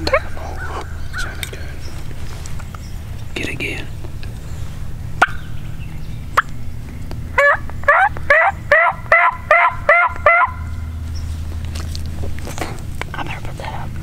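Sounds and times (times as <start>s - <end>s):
turkey call hen yelps: 7.4s - 10.7s.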